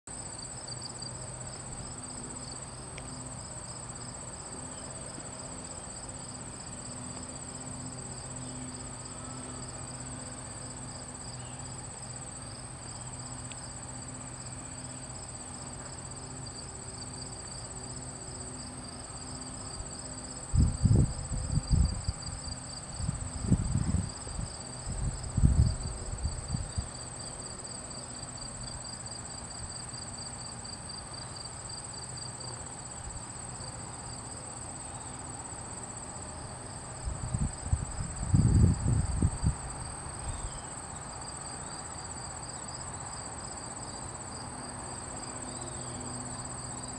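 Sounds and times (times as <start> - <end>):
insects chirring: 0.2 - 46.9
wind buffeting microphone: 20.5 - 26.9, 37.0 - 40.4.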